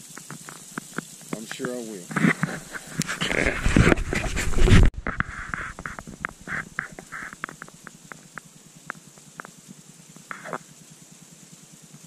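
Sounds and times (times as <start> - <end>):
sleet pellets ticking: 0.0 - 3.4, 5.0 - 12.0
faint hiss: 0.0 - 12.0
brief rustle: 0.2 - 8.0.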